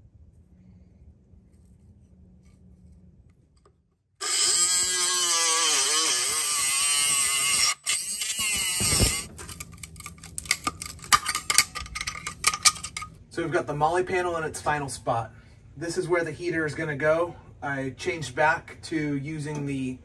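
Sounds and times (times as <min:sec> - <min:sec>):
rotary tool grinding metal: 0:04.2 - 0:09.3.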